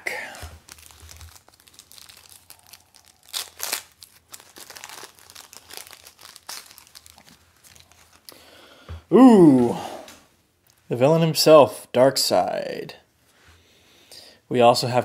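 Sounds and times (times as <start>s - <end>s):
wrapper crinkling and tearing: 0.4s - 8.4s.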